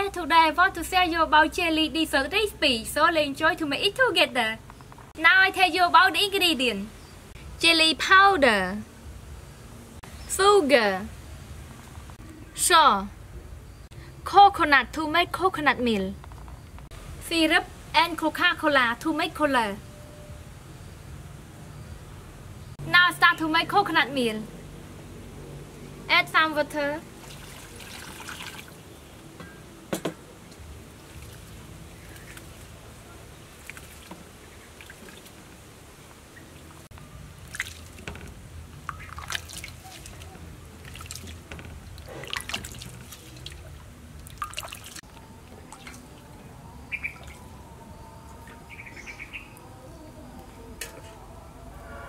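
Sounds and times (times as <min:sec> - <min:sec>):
hands squeezing wet coconut: 0:27.2 - 0:28.8, 0:37.4 - 0:38.1, 0:38.8 - 0:46.0
water poured into steel bowl: 0:27.2 - 0:28.8.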